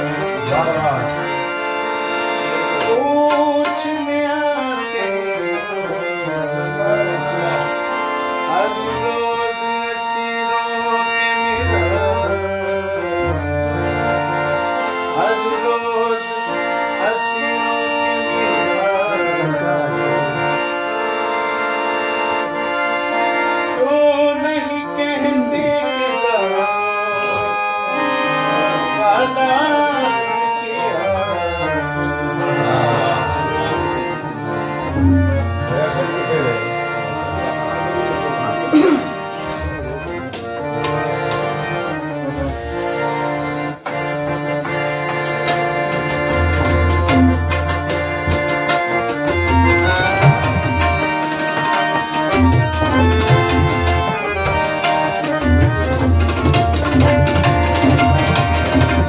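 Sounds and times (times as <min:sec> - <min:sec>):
tabla rhythm: 0:00.0 - 0:07.9, 0:11.0 - 0:14.6, 0:16.9 - 0:38.1, 0:38.9 - 0:59.0
harmonium melody: 0:00.0 - 0:59.0
man singing: 0:02.6 - 0:13.5, 0:15.1 - 0:20.7, 0:23.7 - 0:40.3, 0:48.9 - 0:51.2.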